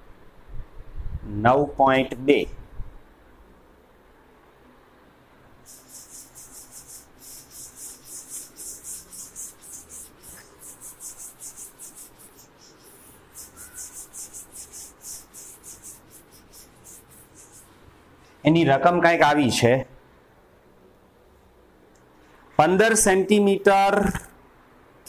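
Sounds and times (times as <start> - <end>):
pen scratching while handwriting: 5.7 - 17.8.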